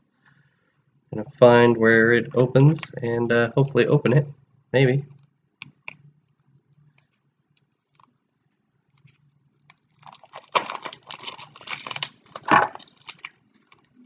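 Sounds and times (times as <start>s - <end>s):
plastic wrapping crinkling: 8.9s - 14.0s.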